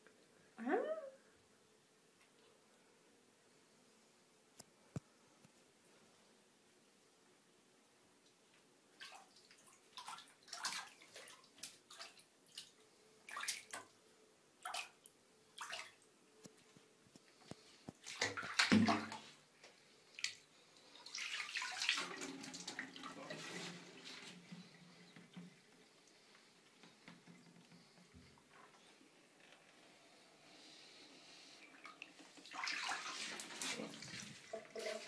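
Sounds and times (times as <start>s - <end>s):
kittens splashing in water: 18.0s - 19.3s, 21.0s - 23.4s, 31.7s - 35.0s.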